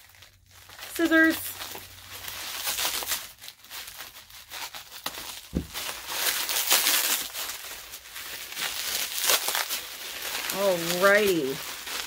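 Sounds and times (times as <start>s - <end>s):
packaging crinkling and rustling: 0.0s - 12.0s
scissors cutting package: 0.0s - 12.0s
low thump: 5.5s - 5.8s.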